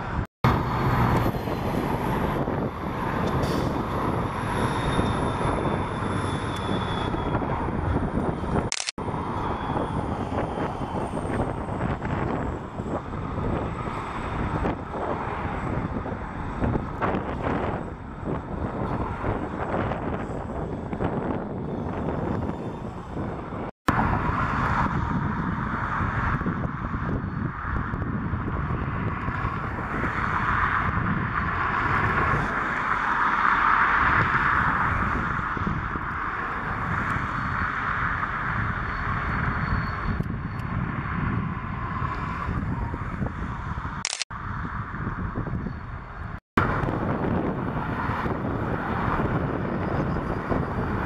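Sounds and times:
diesel locomotives passing: 0.0 - 51.0
wind buffeting microphone: 0.0 - 51.0.

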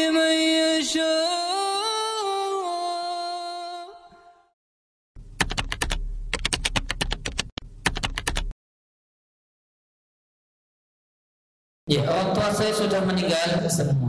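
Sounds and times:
keyboard typing clicks: 5.4 - 8.5.

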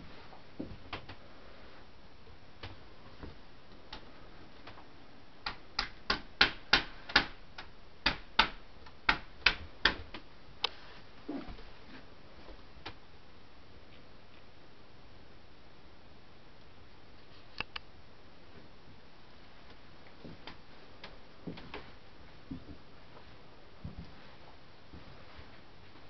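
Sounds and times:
sharp clicks: 17.6 - 17.9.

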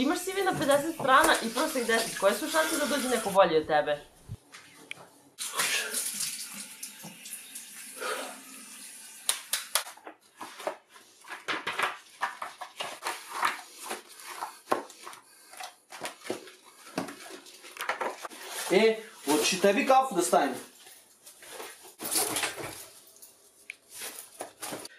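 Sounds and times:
running water hiss: 1.1 - 3.4, 5.4 - 9.3.

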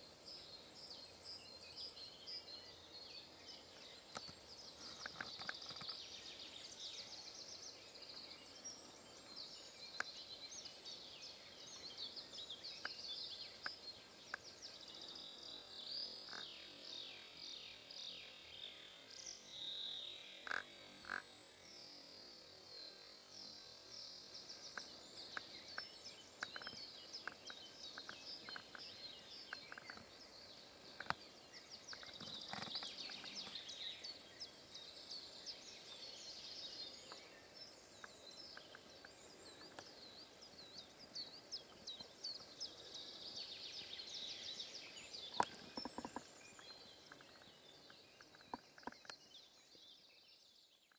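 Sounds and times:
songbirds singing: 0.0 - 50.9.

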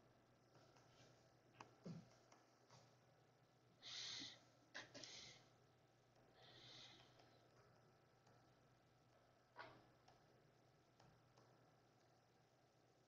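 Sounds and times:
soft breath-like hisses: 3.8 - 5.5, 6.4 - 7.2.

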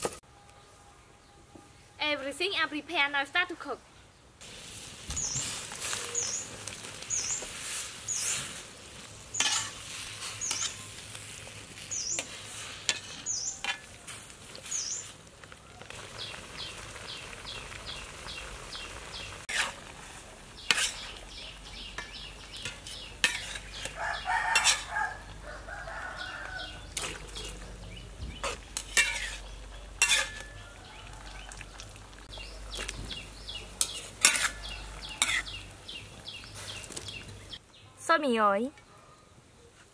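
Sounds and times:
birds chirping: 5.1 - 8.4, 9.1 - 11.0, 11.8 - 12.4, 13.0 - 13.7, 14.6 - 19.5, 20.3 - 39.8
rooster crowing: 23.9 - 26.9, 30.4 - 31.9
metal spatula clinking on wok: 30.0 - 30.6.

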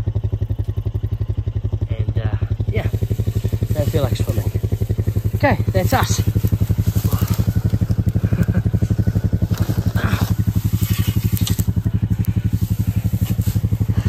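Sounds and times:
small engine idling: 0.0 - 14.0.

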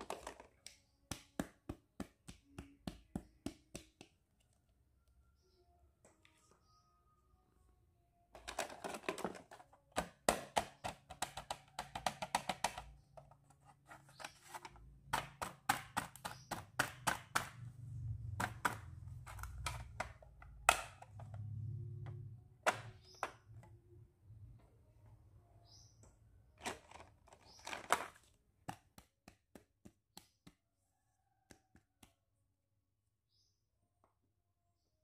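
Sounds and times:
plastic toys clattering and clicking: 0.0 - 1.5, 8.3 - 17.7, 18.3 - 21.5, 22.1 - 23.7, 26.6 - 29.0.

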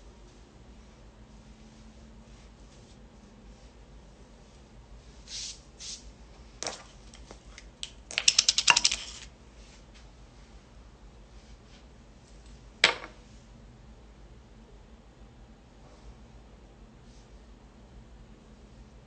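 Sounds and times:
small jar clinking and rattling: 8.1 - 9.3.

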